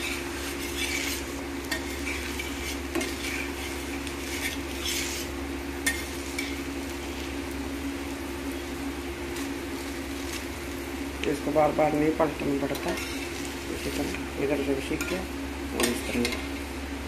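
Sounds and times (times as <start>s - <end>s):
metal spatula scraping griddle: 0.0s - 7.2s, 11.7s - 16.6s
pancake sizzling in oil: 0.0s - 17.0s
steady low hum: 0.0s - 17.0s.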